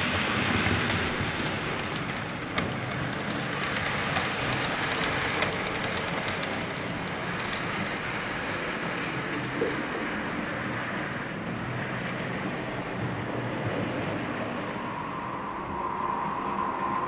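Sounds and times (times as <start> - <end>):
model train rolling on track: 0.0 - 14.7
sharp track clicks: 0.1 - 8.5.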